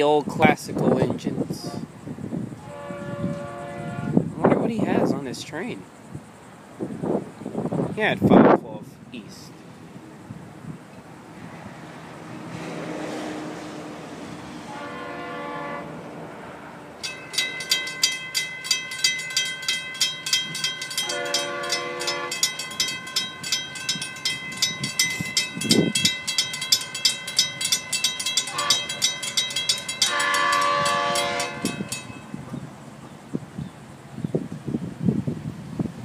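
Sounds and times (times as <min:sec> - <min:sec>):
locomotive horn: 0:02.6 - 0:04.3, 0:12.3 - 0:17.0, 0:21.0 - 0:22.5, 0:28.4 - 0:29.1, 0:30.0 - 0:32.1
crossing bell ringing: 0:17.0 - 0:32.5.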